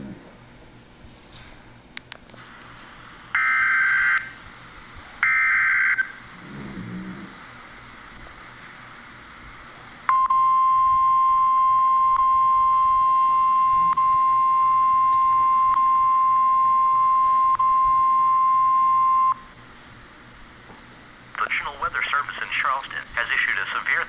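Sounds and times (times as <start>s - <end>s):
steady warning alarm tone: 3.3s - 6.4s, 10.1s - 19.6s.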